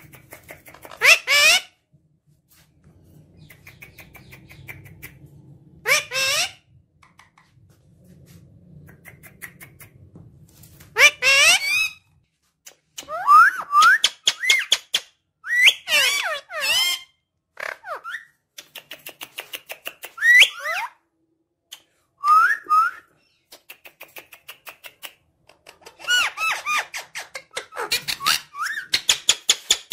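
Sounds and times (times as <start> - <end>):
parakeet rapid clicks: 23.6 - 25.8.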